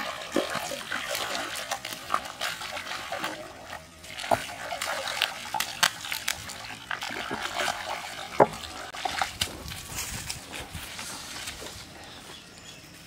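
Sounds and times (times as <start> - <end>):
fish splashing in water: 0.0 - 9.9.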